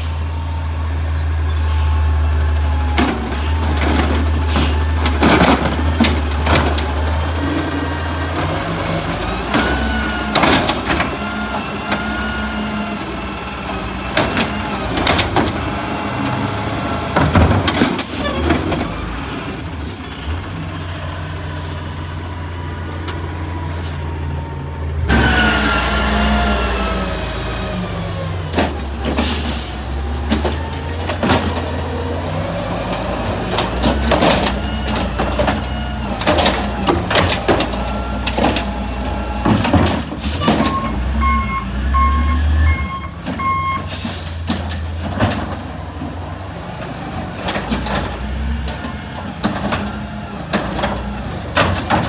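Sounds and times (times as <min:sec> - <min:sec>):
diesel engine revving: 0:00.0 - 0:52.0
garbage cart bangs and clatters: 0:02.8 - 0:07.0, 0:17.1 - 0:19.0, 0:39.4 - 0:41.0, 0:48.8 - 0:52.0
hydraulic whine: 0:23.3 - 0:27.4.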